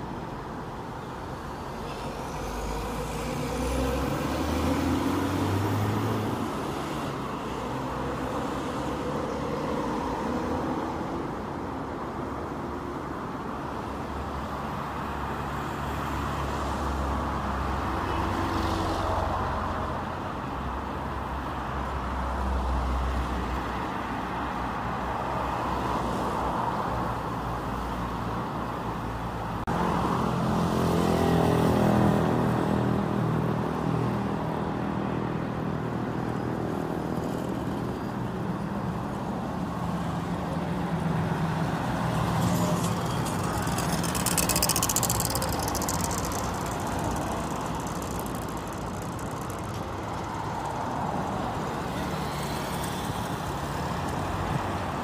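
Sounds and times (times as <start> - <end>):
cars driving past: 1.5 - 11.3, 29.6 - 55.0
car engine passing close: 41.6 - 54.1.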